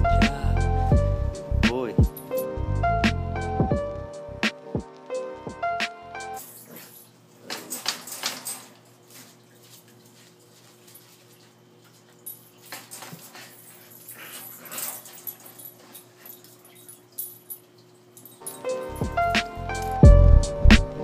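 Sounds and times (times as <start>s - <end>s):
paws scrambling on tile floor: 6.4s - 19.4s.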